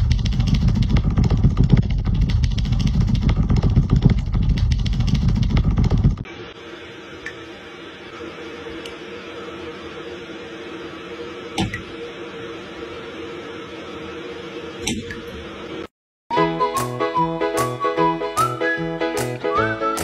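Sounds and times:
steady hum: 0.0 - 15.9.

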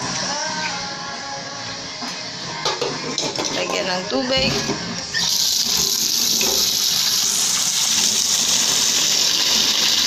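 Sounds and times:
tap running into metal pot: 5.8 - 6.8.

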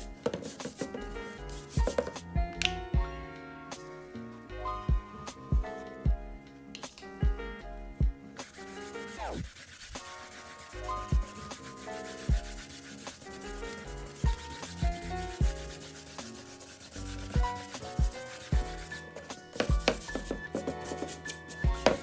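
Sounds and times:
background music: 0.0 - 22.0
brush scrubbing on canvas: 8.4 - 22.0.

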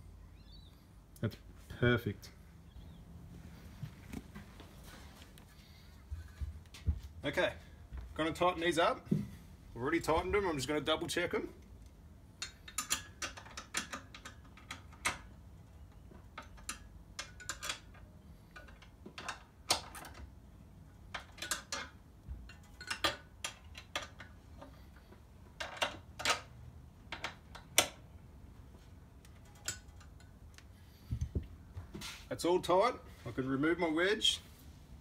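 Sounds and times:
wrench clicking on steel bolts: 12.4 - 15.2.

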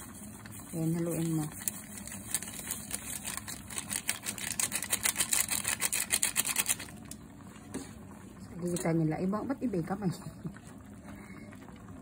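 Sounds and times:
plastic sachet crinkling: 0.5 - 7.1.

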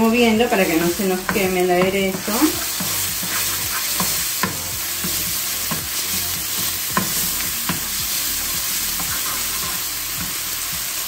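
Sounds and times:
onion sizzling in oil: 0.0 - 11.0
wooden spoon scraping pan: 0.2 - 7.3, 8.9 - 9.9.

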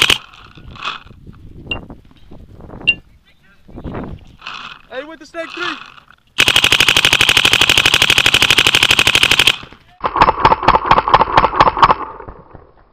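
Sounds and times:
paintball marker firing rapidly: 6.4 - 12.2.

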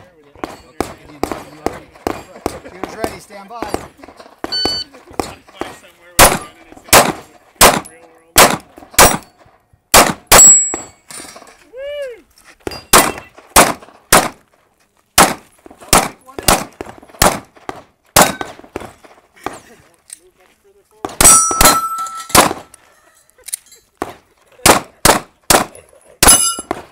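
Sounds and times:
pistol shots: 0.4 - 9.3, 9.9 - 10.9, 12.9 - 14.4, 15.2 - 19.6, 21.0 - 22.8, 24.0 - 26.9.

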